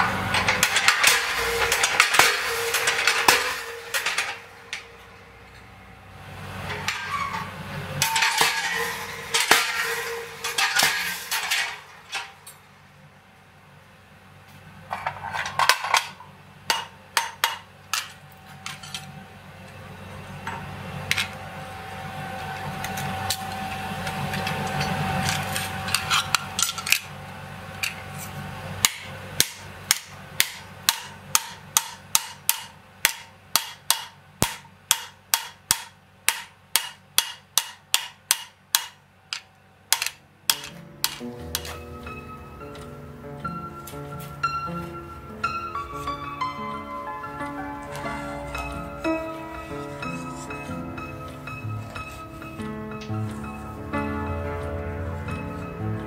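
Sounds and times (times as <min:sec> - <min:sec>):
hammer striking steel on anvil: 0:00.0 - 0:05.8, 0:08.0 - 0:12.5, 0:16.7 - 0:19.1, 0:28.8 - 0:41.8
steady low hum: 0:00.0 - 0:56.0.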